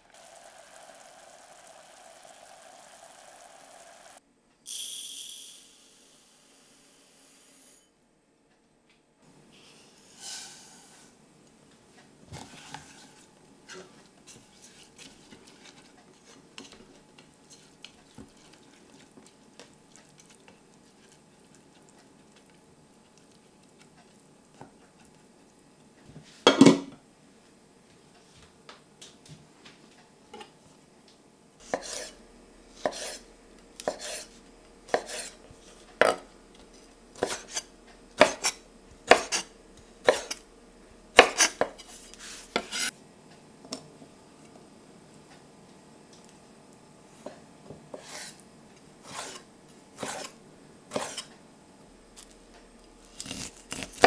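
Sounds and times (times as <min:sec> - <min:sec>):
spoon stirring in pan: 0:12.4 - 0:26.0, 0:33.8 - 0:36.2, 0:49.0 - 0:51.4
knife chopping on wooden board: 0:31.7 - 0:32.1, 0:33.8 - 0:34.2, 0:34.9 - 0:35.3, 0:37.2 - 0:37.6, 0:38.2 - 0:40.4, 0:41.2 - 0:41.8.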